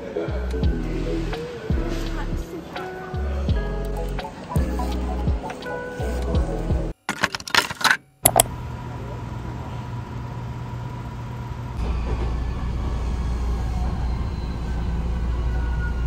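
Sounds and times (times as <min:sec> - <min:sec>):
station platform hum: 0:04.3 - 0:11.8.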